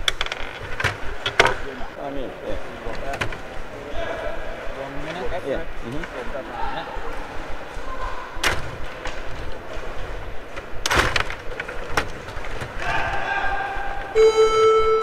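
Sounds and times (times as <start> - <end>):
control rods rattling: 0.0 - 3.8, 7.1 - 13.4.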